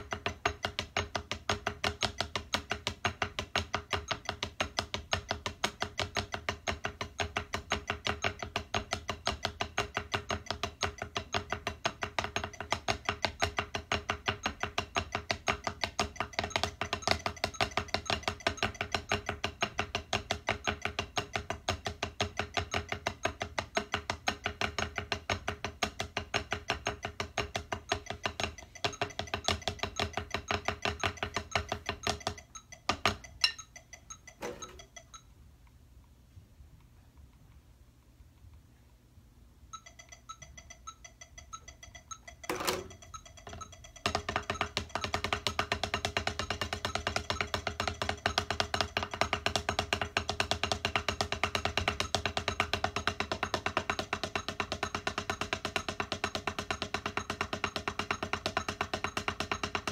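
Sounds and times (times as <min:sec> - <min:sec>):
drumsticks on practice pad: 0:00.0 - 0:35.4, 0:39.7 - 0:59.9.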